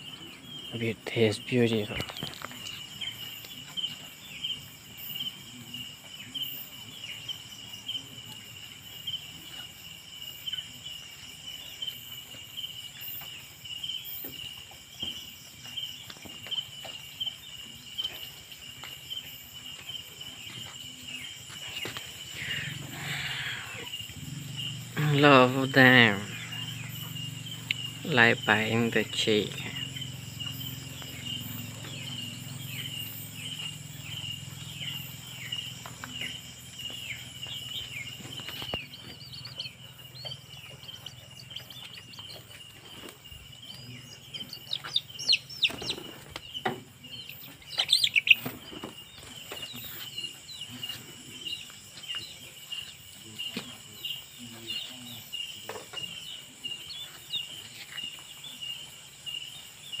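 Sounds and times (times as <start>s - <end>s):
chickens chirping: 0.0s - 60.0s
chickens pecking ground: 0.0s - 60.0s
night insects chirring: 0.0s - 60.0s.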